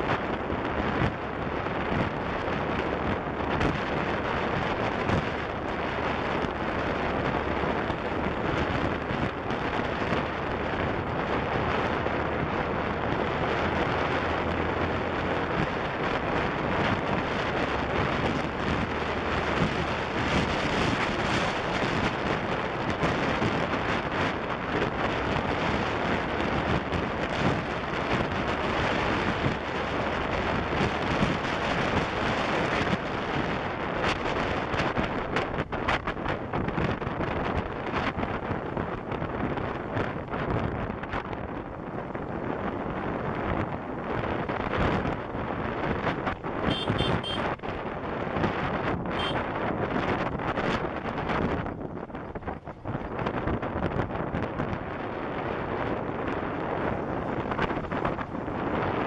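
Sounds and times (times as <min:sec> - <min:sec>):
wind buffeting microphone: 0:00.0 - 0:59.0
faint motorcycle engine: 0:46.3 - 0:47.6.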